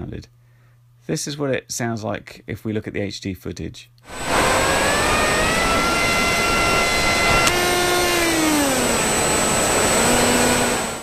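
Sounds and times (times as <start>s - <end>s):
electric motor whining: 4.1s - 11.0s.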